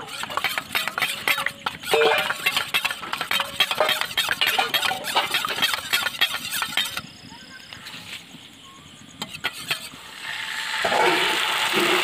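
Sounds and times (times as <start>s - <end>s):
spoon stirring in metal bowl: 0.0s - 7.1s, 9.2s - 9.9s.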